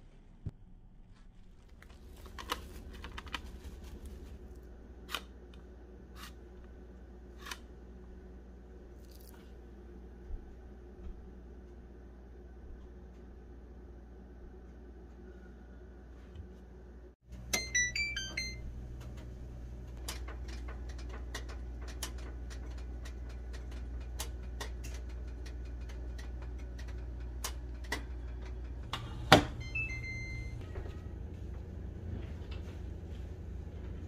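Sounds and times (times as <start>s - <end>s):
steady low hum: 0.0s - 34.0s
oven control panel beeping: 17.3s - 19.8s, 27.3s - 31.3s.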